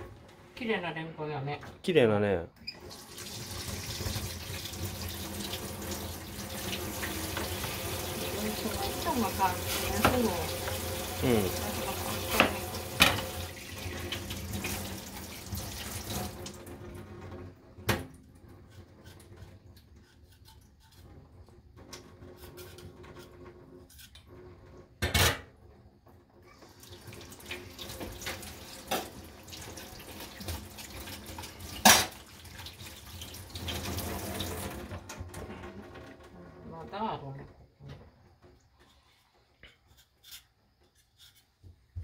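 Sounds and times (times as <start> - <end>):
tap water running into sink: 2.8 - 18.2, 26.7 - 36.3
kitchenware clattering: 7.1 - 14.2, 31.8 - 32.2.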